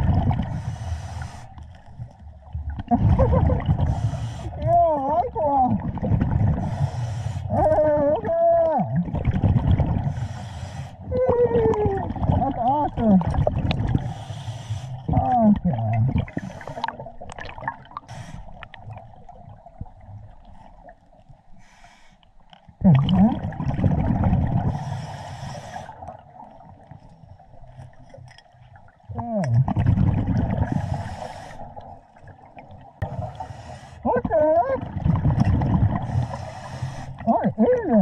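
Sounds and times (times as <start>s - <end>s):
hissing regulator inhales: 0.5s - 1.6s, 3.9s - 4.6s, 6.6s - 7.5s, 10.1s - 11.0s, 14.0s - 15.0s, 18.0s - 18.6s, 24.8s - 26.0s, 30.7s - 31.7s, 33.4s - 34.0s, 36.1s - 37.2s
bubbling exhales: 29.3s - 31.9s.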